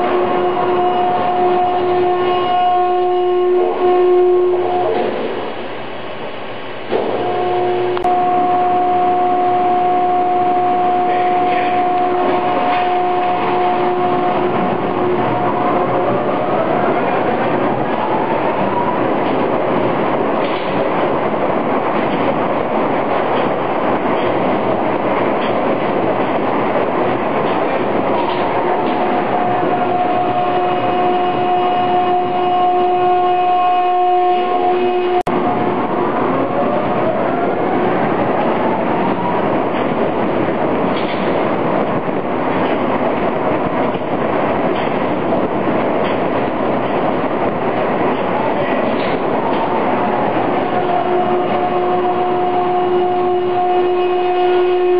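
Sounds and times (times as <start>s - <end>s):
water rushing along a hull: 0.0s - 54.9s
carriage rolling on rails: 9.5s - 33.3s, 35.1s - 54.9s.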